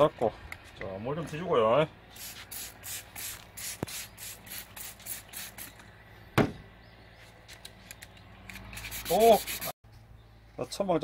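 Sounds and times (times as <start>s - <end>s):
spray bottle squirting: 2.1s - 5.8s, 8.5s - 9.7s.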